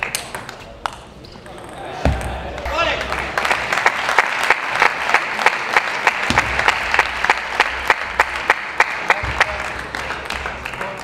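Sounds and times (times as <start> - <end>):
audience applauding: 2.6 - 11.0
sharp claps: 2.6 - 11.0.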